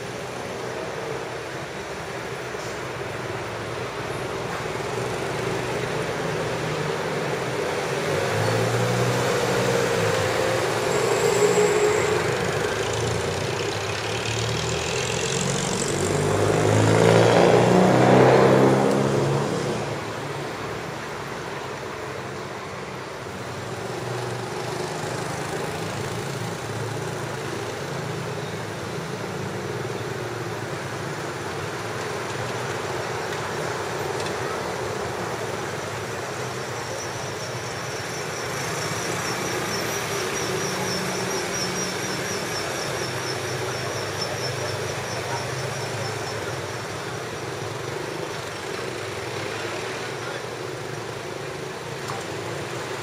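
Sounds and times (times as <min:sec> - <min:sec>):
steady traffic hum: 0:00.0 - 0:53.0
vehicle passing close: 0:07.9 - 0:20.9.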